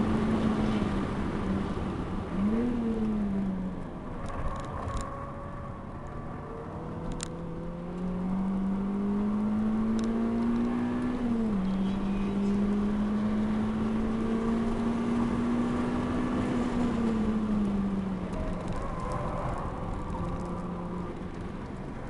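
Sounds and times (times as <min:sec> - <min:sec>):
car engine accelerating: 0:00.0 - 0:22.0
tyre and road noise: 0:00.0 - 0:22.0.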